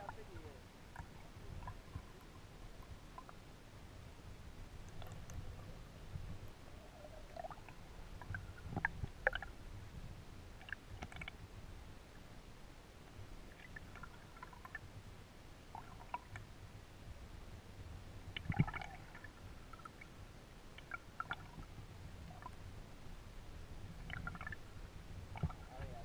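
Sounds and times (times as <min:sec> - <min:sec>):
muffled underwater rumble: 0:00.0 - 0:11.9, 0:20.8 - 0:26.0
small clicks: 0:04.8 - 0:05.4.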